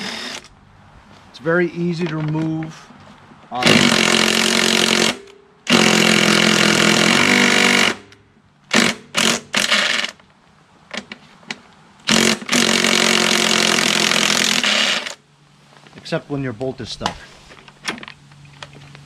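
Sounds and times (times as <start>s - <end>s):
cordless power driver running: 0.0s - 0.5s, 3.6s - 8.0s.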